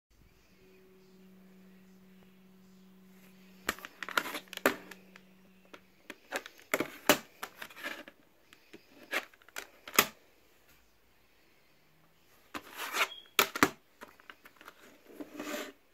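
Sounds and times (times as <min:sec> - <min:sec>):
steady low hum: 0:00.1 - 0:12.8.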